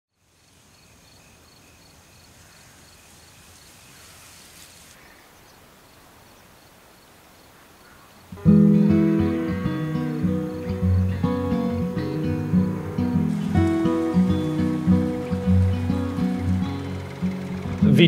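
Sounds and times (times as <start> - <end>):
insects chirping: 0.1 - 18.0
faint steady hiss: 0.2 - 18.0
acoustic guitar music: 8.3 - 18.0.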